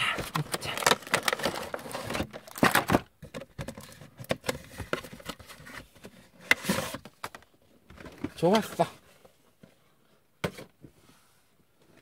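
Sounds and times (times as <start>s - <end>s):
plastic blister tray crinkling: 0.2s - 5.5s.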